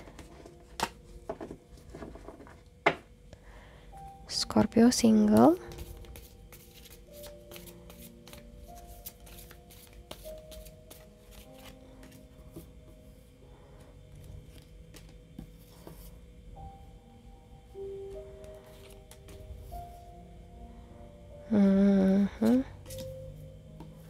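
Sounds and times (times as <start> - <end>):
cards being shuffled: 5.3 - 12.2.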